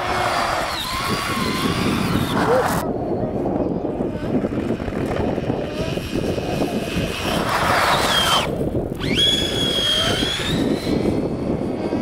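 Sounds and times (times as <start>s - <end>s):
toy truck motor whining: 0.0s - 2.8s, 5.2s - 11.8s
wind rumble on microphone: 0.0s - 12.0s.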